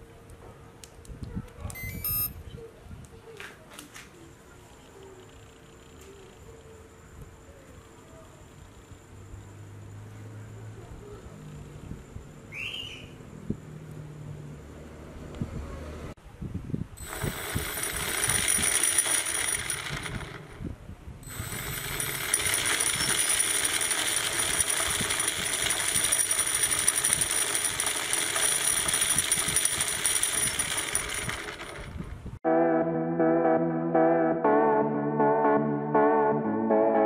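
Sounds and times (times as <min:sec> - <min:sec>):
fast gear rattle: 0:17.0 - 0:20.6, 0:21.3 - 0:32.2.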